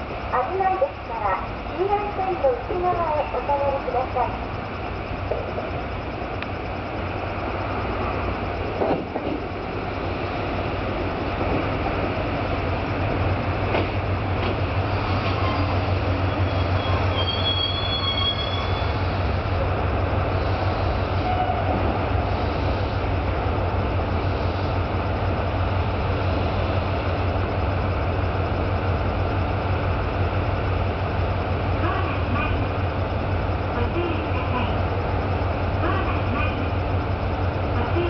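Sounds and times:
diesel engine idling: 0.0s - 38.0s
train brake squeal: 15.0s - 19.1s, 20.8s - 21.8s.

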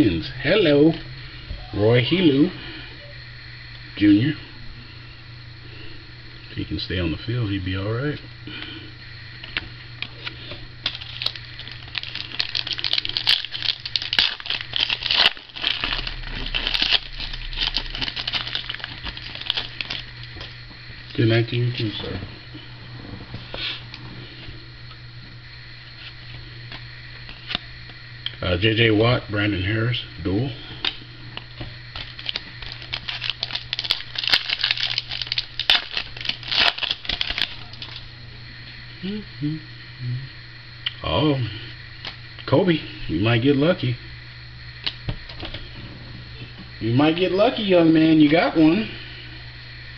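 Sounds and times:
foil pack tearing and crinkling: 10.2s - 20.6s, 31.9s - 38.1s.

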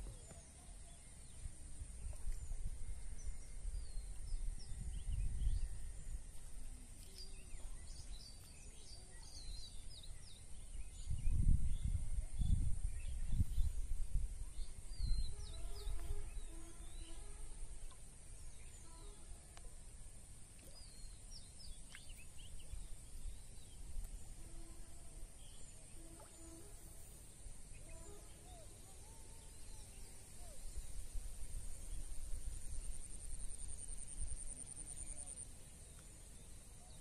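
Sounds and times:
small birds chirping: 0.0s - 19.8s, 20.5s - 31.0s
wind rumble on microphone: 1.2s - 8.3s, 9.2s - 17.1s.

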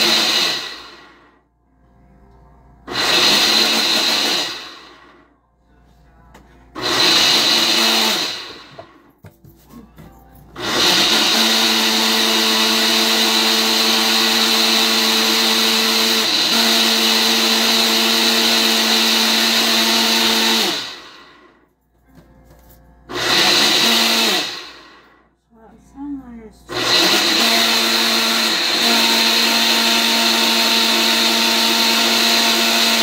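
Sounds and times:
blender motor running: 0.0s - 1.4s, 2.9s - 5.3s, 6.8s - 9.0s, 10.6s - 21.6s, 23.1s - 25.2s, 26.7s - 33.0s.

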